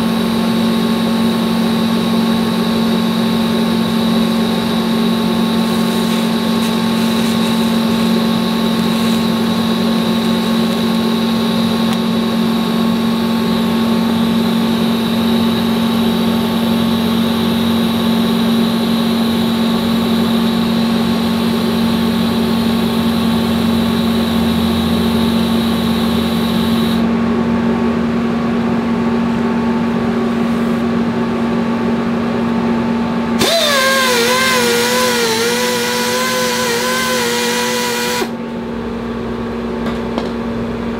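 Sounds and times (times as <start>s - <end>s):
welding machine hum: 0.0s - 27.1s, 33.4s - 40.9s
die grinder wire brush whine: 2.6s - 27.0s, 33.4s - 38.4s.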